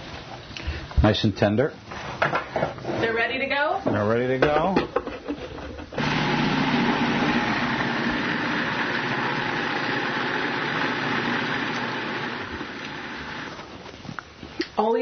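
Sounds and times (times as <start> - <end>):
food processor motor running: 6.0 - 13.6.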